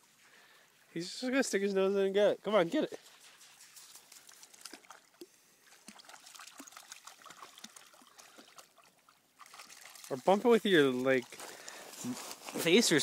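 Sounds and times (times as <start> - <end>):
dog wading through shallow water: 3.0 - 12.0.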